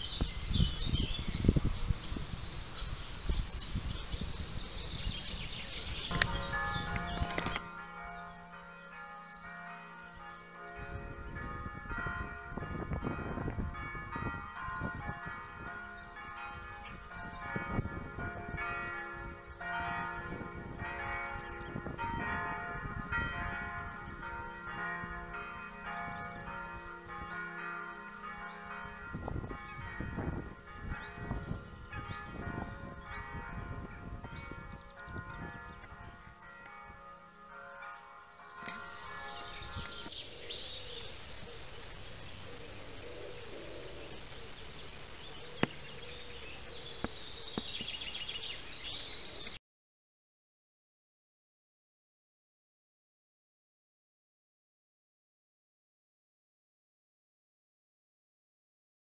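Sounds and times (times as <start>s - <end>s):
church bells ringing: 4.6s - 49.4s.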